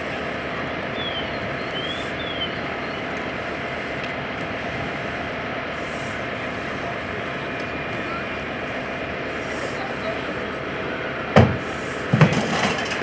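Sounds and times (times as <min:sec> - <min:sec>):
engine droning: 0:00.0 - 0:13.0.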